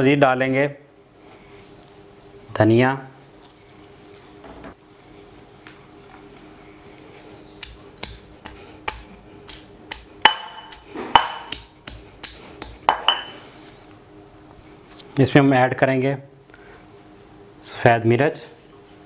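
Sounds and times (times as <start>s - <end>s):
stone pestle pounding in mortar: 7.6s - 13.3s.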